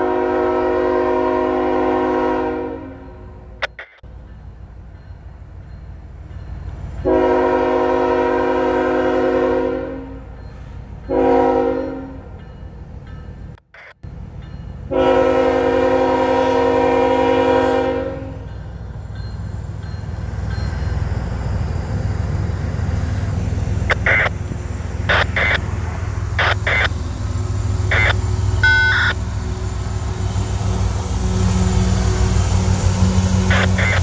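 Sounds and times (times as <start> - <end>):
locomotive horn blast: 0.0 - 3.3, 7.0 - 10.2, 11.1 - 12.3, 14.9 - 18.5, 23.9 - 24.3, 25.1 - 25.6, 26.4 - 27.0, 27.8 - 34.0
train rumbling past: 0.0 - 34.0
sharp clicks: 3.6 - 4.0, 13.6 - 14.0, 23.9 - 24.4, 25.0 - 25.6, 26.4 - 27.0.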